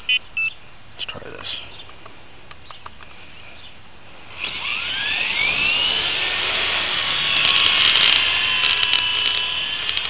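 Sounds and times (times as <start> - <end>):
rc helicopter motor whine: 4.3 - 10.0
sharp clicks: 7.3 - 10.0.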